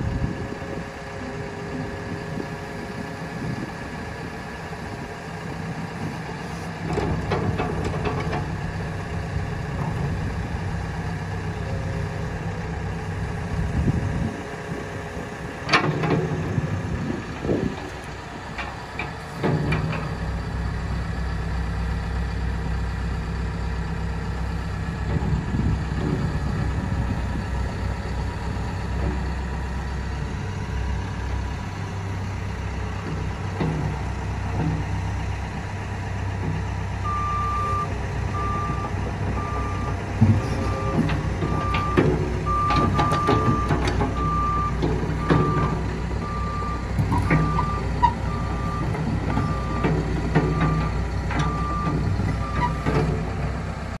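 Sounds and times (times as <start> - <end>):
excavator diesel engine running: 0.0 - 54.0
machine clanks and knocks: 6.9 - 8.5, 15.6 - 16.5, 18.6 - 20.1, 40.2 - 45.8.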